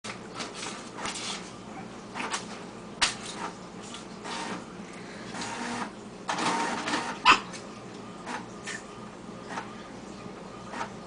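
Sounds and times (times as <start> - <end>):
printer running in mechanical bursts: 4.2 - 4.7, 5.3 - 7.3, 8.2 - 8.5, 9.5 - 9.8, 10.6 - 11.0.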